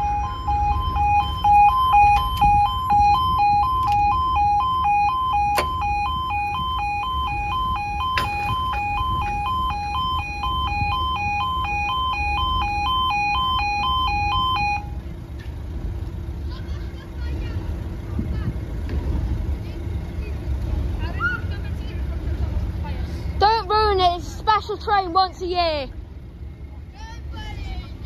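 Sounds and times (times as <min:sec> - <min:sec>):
two-tone warbling crossing alarm: 0:00.0 - 0:15.0.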